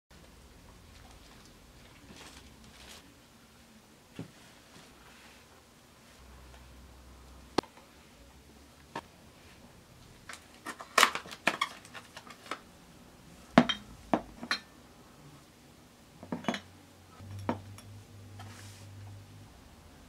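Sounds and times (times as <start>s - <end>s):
light bulbs and boxes set on table: 16.2s - 19.4s.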